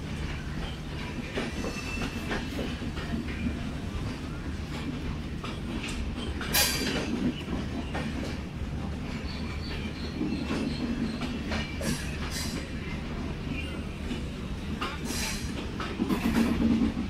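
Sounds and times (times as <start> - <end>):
train rumbling past: 0.0 - 17.0
wheels clacking over rail joints: 0.3 - 17.0
faint high wheel squeal: 0.6 - 2.7, 9.1 - 14.4.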